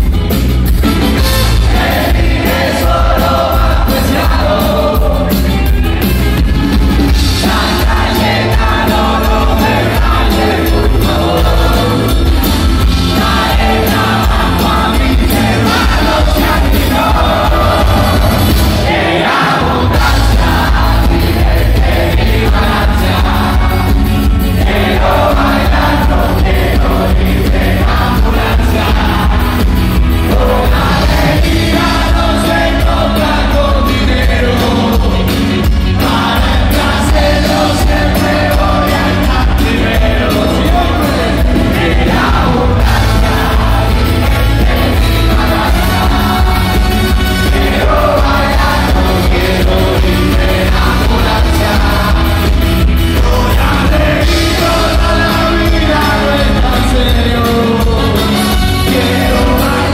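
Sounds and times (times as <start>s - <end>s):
live band music: 0.0s - 59.9s
man singing into microphone: 7.4s - 12.4s, 30.3s - 35.3s, 36.0s - 46.4s, 47.5s - 52.5s, 53.1s - 59.9s.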